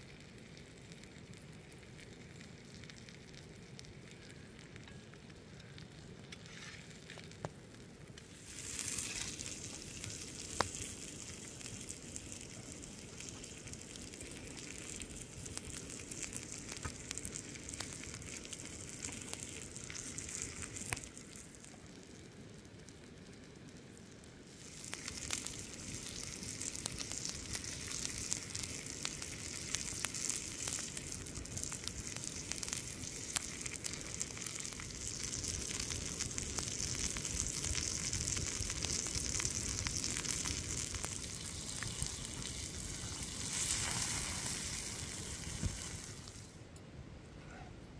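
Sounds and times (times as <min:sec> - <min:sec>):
wood fire crackling: 0:00.0 - 0:46.8
steak sizzling on stone: 0:08.2 - 0:22.1, 0:24.5 - 0:46.5.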